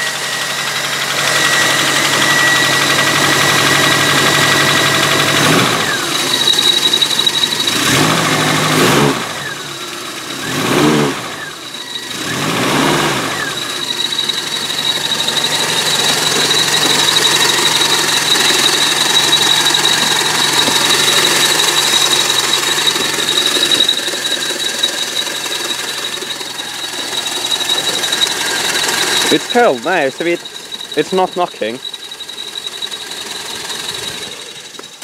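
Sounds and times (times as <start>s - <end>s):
car engine running: 0.0s - 35.0s
engine revving: 0.0s - 35.0s
thin high whine: 13.3s - 35.0s.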